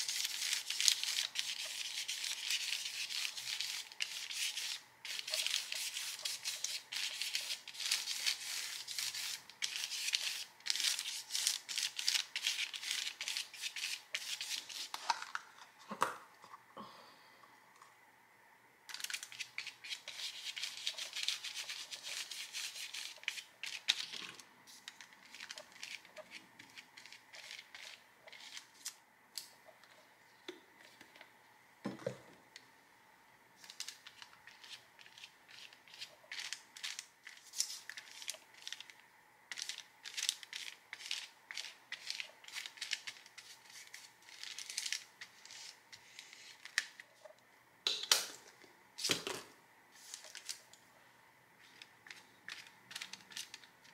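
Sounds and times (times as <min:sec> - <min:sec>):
paintbrush scrubbing on paper: 0:00.0 - 0:15.0, 0:19.3 - 0:24.1, 0:24.7 - 0:28.8.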